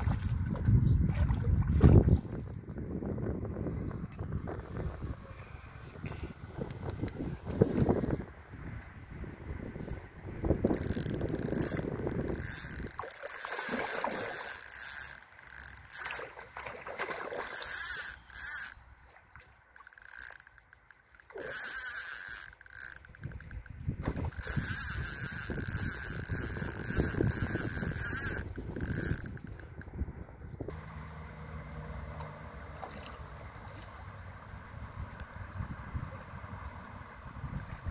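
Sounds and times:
wind rumble on microphone: 0:00.0 - 0:13.0, 0:23.0 - 0:30.8, 0:32.7 - 0:37.9
fishing reel ratcheting: 0:10.6 - 0:16.4, 0:17.4 - 0:18.8, 0:19.7 - 0:30.0.

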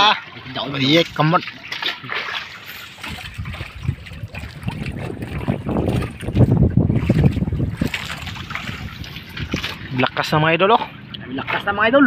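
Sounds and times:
rough sea washing against boat: 0:00.0 - 0:12.0
wind buffeting microphone: 0:02.8 - 0:12.0.

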